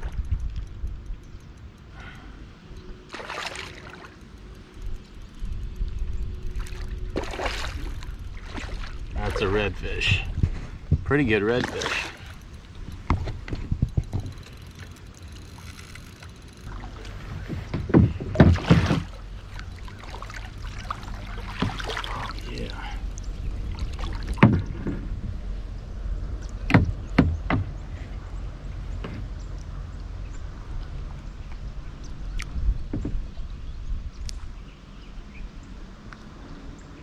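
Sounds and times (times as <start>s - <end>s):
fish splashing in water: 3.1s - 4.2s, 6.6s - 9.4s, 18.4s - 22.5s
knocks against kayak: 17.5s - 19.1s.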